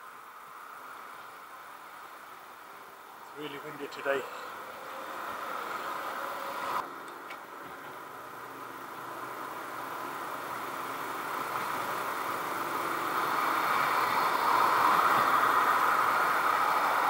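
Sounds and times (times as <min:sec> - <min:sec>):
road traffic: 0:00.0 - 0:17.0
wind rush on microphone: 0:13.0 - 0:17.0.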